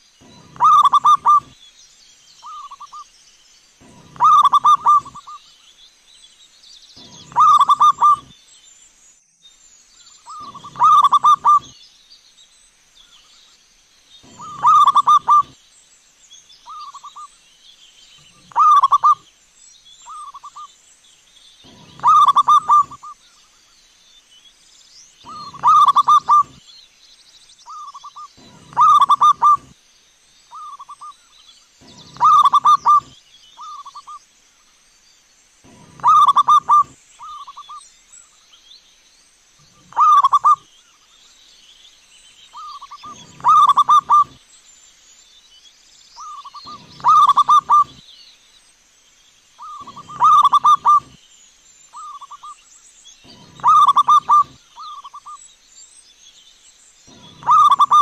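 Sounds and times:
dove cooing: 0:00.2 - 0:01.5, 0:03.8 - 0:05.4, 0:07.0 - 0:08.3, 0:10.3 - 0:11.7, 0:14.2 - 0:15.6, 0:18.3 - 0:19.2, 0:21.7 - 0:23.1, 0:25.3 - 0:26.6, 0:27.7 - 0:29.7, 0:31.8 - 0:34.0, 0:35.7 - 0:37.6, 0:39.7 - 0:40.6, 0:42.7 - 0:44.4, 0:46.3 - 0:48.0, 0:49.6 - 0:51.2, 0:53.3 - 0:55.2, 0:57.1 - 0:58.0.

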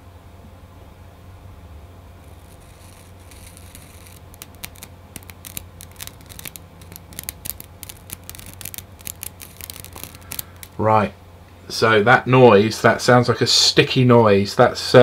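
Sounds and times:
tape peeling with sticky crackling: 0:02.2 - 0:10.8.

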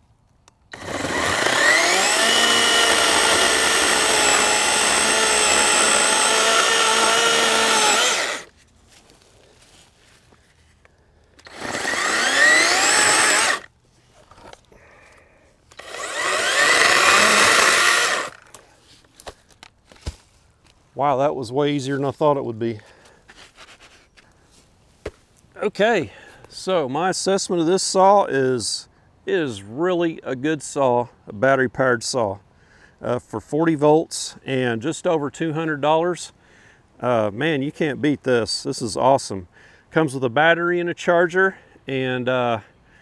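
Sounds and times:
battery chainsaw cutting wood: 0:00.7 - 0:08.5, 0:11.4 - 0:13.7, 0:15.7 - 0:18.6.

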